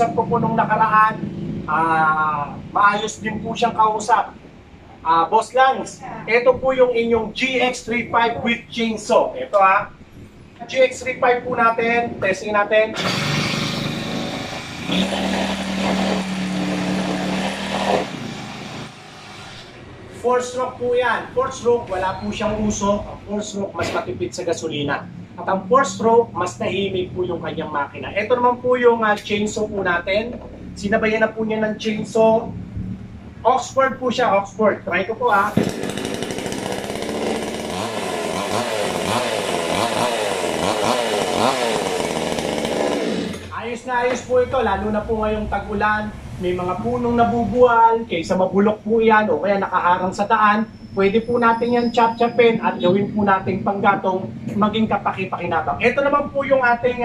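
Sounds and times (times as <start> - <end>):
brush cutter engine revving: 13.0 - 19.8, 35.4 - 43.6.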